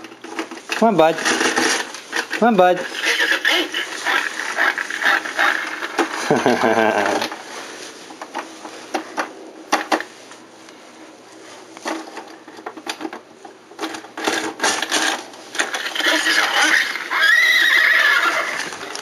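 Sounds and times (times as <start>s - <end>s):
plastic toys clicking and knocking: 0.0s - 6.2s, 11.8s - 13.2s, 13.8s - 16.3s
toy playing horse whinny: 3.0s - 5.8s, 15.9s - 18.8s.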